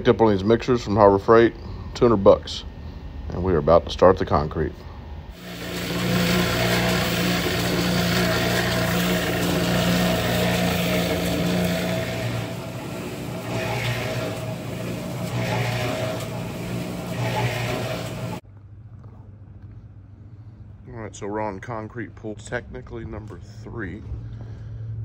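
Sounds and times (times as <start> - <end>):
cement mixer humming: 5.3 - 18.4
wet concrete churning in drum: 5.4 - 18.4.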